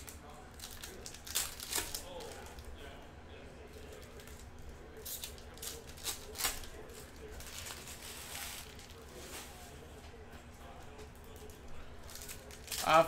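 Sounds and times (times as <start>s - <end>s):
foil wrapper rustling: 0.0s - 2.7s, 3.8s - 9.8s, 11.3s - 13.0s.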